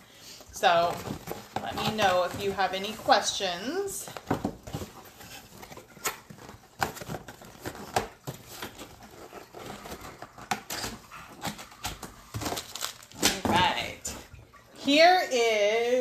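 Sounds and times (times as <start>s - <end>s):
cardboard box taps and rustles: 4.1s - 13.9s.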